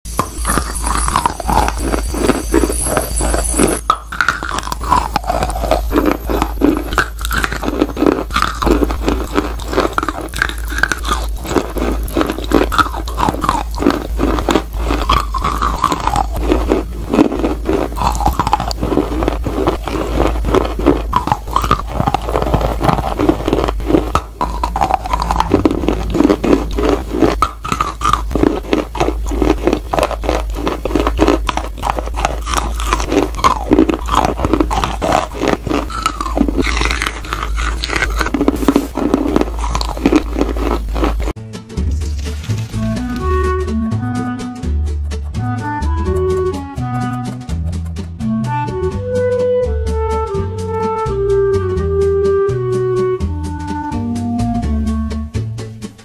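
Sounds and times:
clay crunching between teeth: 0.1 - 41.4
gritty chewing: 0.1 - 41.4.

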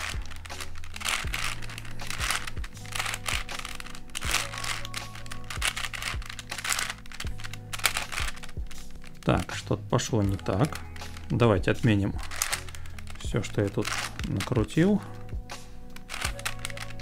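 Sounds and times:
puzzle layers clicking and clacking: 0.0 - 8.6, 16.0 - 17.0
background music with steady beat: 0.0 - 17.0.

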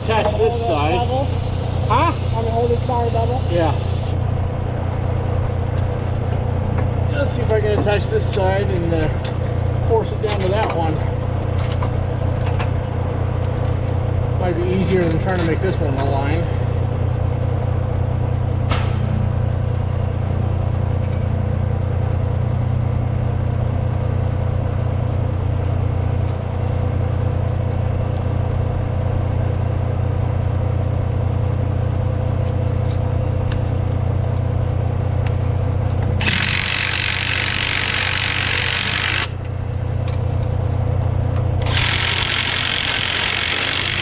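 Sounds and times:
low engine hum: 0.0 - 36.3, 39.2 - 42.1
impact wrench hammering: 36.2 - 39.4, 41.6 - 44.0.

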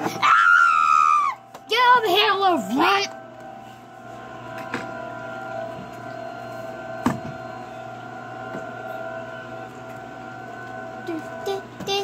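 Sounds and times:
steady hum of held tones: 0.0 - 12.0.

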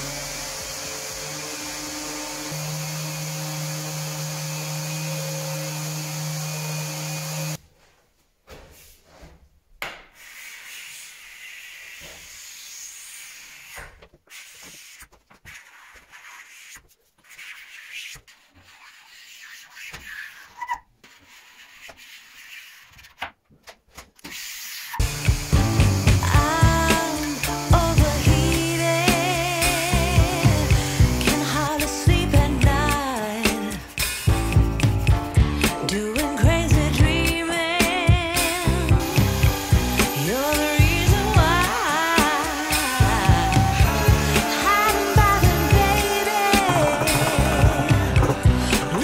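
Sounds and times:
orbital sander with vacuum running: 0.0 - 7.6, 25.0 - 31.5, 38.4 - 49.0
hand scraper scraping wood: 10.2 - 23.3, 24.2 - 31.9, 37.8 - 49.0.

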